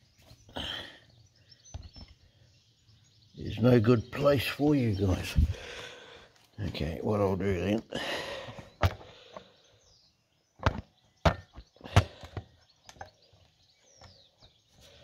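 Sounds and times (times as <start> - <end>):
tools and engine parts clunking: 10.6 - 14.5.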